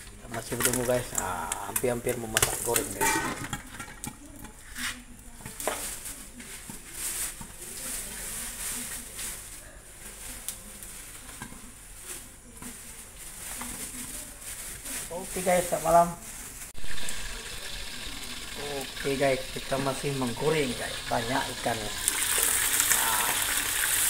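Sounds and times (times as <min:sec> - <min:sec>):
fish sizzling in hot oil: 0:00.3 - 0:04.8, 0:16.7 - 0:24.0.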